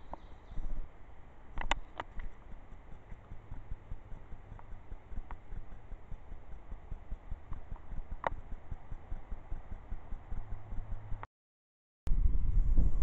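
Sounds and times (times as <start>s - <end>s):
low rumble on microphone: 0.0s - 11.3s, 12.1s - 13.0s
faint scattered clicks: 1.5s - 6.7s, 7.5s - 8.6s.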